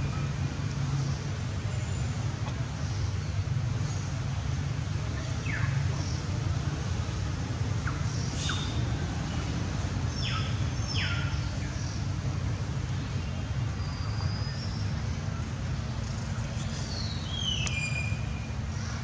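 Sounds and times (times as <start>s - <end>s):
birds calling: 7.8s - 9.4s, 10.1s - 12.1s.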